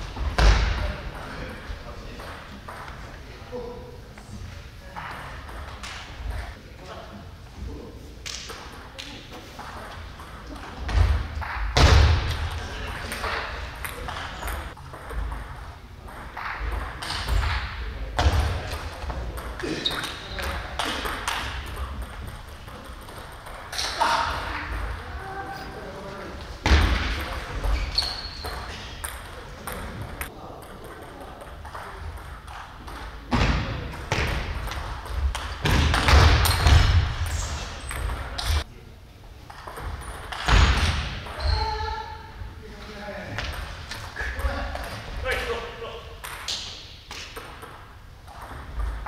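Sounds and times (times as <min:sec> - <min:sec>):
ping pong ball on paddles: 0:12.9 - 0:25.0, 0:39.5 - 0:41.7, 0:46.2 - 0:49.0.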